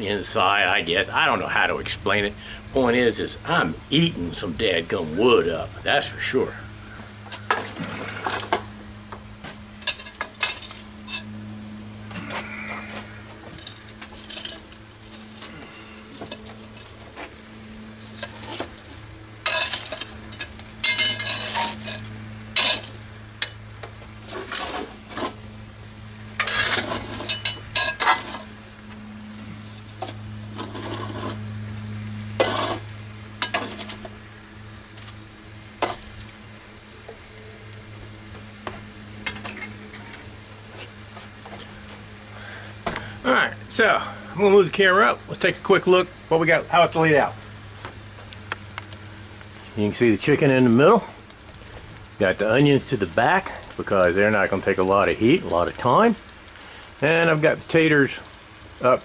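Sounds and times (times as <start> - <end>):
steady low hum: 0.0 - 59.0
pans scraping and clinking: 9.8 - 11.3, 19.4 - 23.6, 26.4 - 28.5, 30.0 - 31.4, 32.4 - 34.1.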